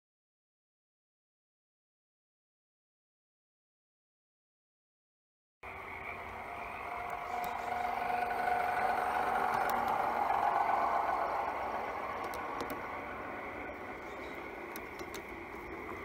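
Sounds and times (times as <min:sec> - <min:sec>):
model train wheels whirring: 0:05.7 - 0:16.0.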